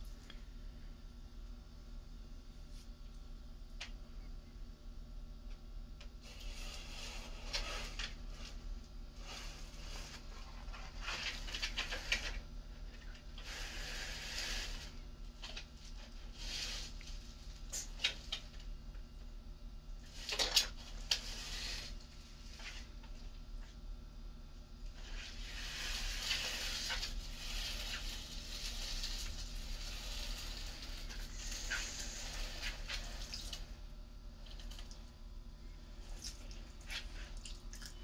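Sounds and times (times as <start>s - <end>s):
claws scraping on plastic: 6.2s - 18.7s, 20.1s - 23.0s, 25.0s - 33.7s.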